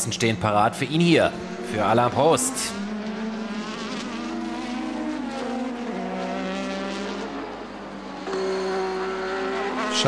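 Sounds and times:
race car engine at high revs: 0.6 - 10.0.

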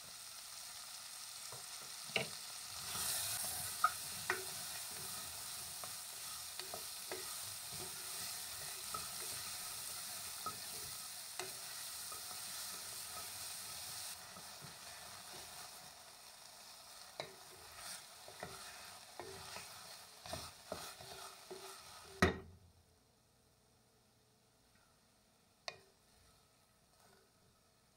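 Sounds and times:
onion and carrot sizzling: 0.0 - 22.5, 25.7 - 27.9
wooden spoon scraping a pot: 2.2 - 15.6, 17.2 - 22.2.

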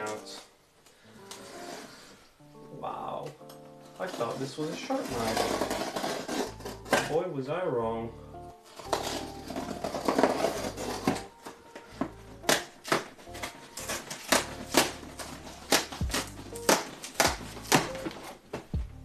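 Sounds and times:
knife cutting cardboard: 4.0 - 7.2, 8.7 - 18.7.

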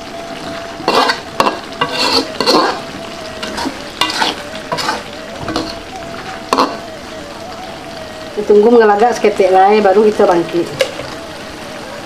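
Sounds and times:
sauce sizzling: 0.0 - 12.0
metal spatula scraping a wok: 0.9 - 5.8.

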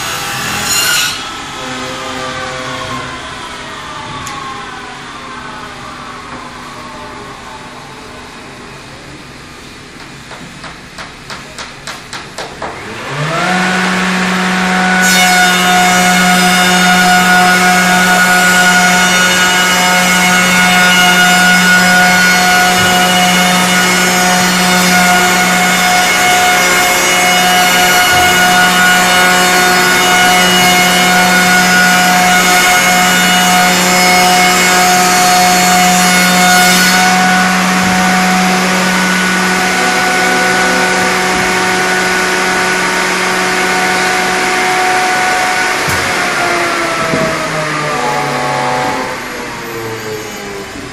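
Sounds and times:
electric saw motors humming: 0.0 - 8.7, 12.7 - 50.9
sharp knocks: 10.0 - 12.8.

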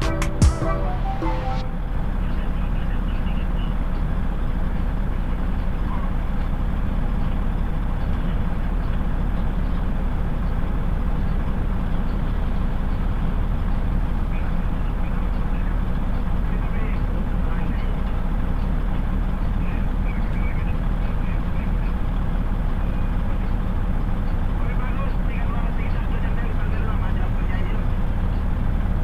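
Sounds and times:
diesel engines droning: 0.0 - 29.0.

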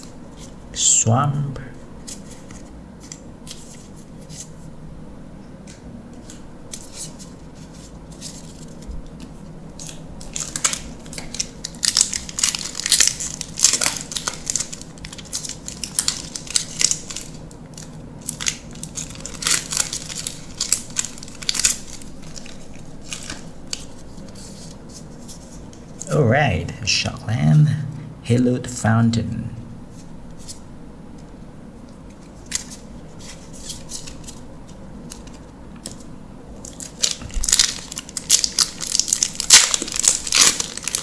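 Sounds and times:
plastic wrapper tearing and crinkling: 8.2 - 24.8, 32.4 - 34.4, 36.6 - 41.0.

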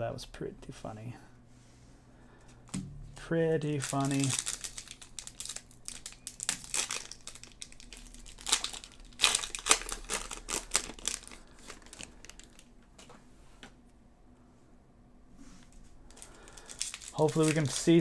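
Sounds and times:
foil wrappers crinkling: 3.6 - 12.8, 16.1 - 18.0.

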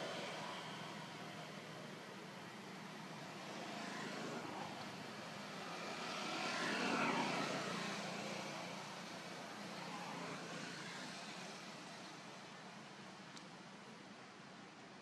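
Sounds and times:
distant engine passing by: 2.8 - 12.3.

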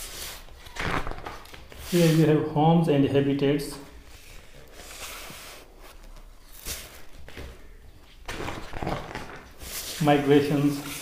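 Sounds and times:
book page turning: 8.3 - 11.0.

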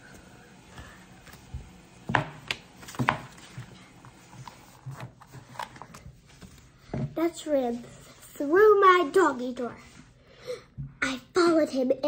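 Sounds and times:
book knocking and tapping: 1.3 - 3.7.

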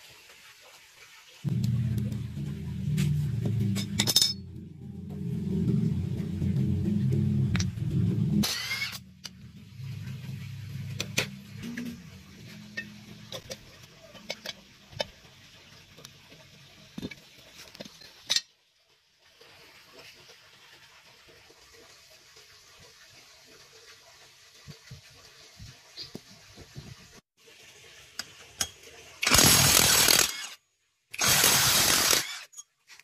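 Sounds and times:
low hum: 1.4 - 14.3
metal tools clinking: 4.0 - 4.4.

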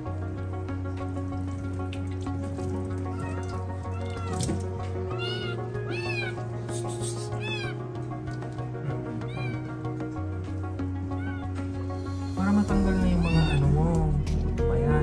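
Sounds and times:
kitten meowing: 3.1 - 4.5, 5.1 - 6.4, 7.3 - 7.8, 9.2 - 9.8, 11.1 - 11.6, 13.0 - 13.7.

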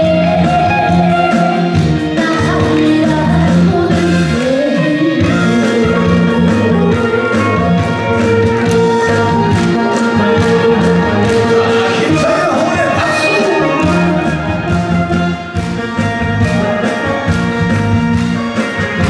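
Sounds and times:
boy singing into a microphone: 0.0 - 14.3
recorded backing track: 0.0 - 19.0.

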